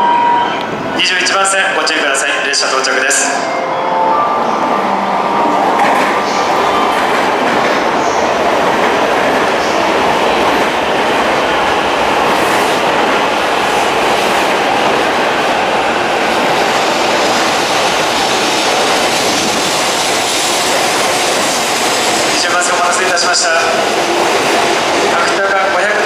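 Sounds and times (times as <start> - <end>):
train wheels rushing on rails: 4.2 - 26.0.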